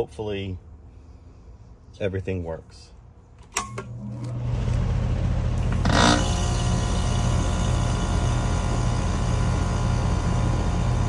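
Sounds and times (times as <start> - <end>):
air conditioner compressor humming: 3.3 - 11.0.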